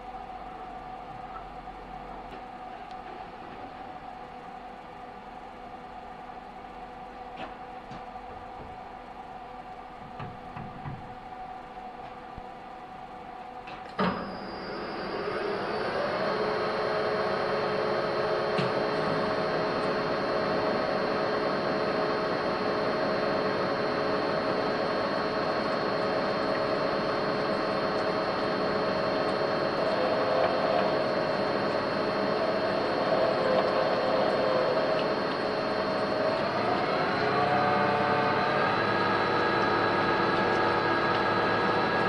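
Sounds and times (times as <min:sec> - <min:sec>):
lathe motor whining: 0:14.0 - 0:42.0
drill bit cutting metal: 0:25.4 - 0:42.0.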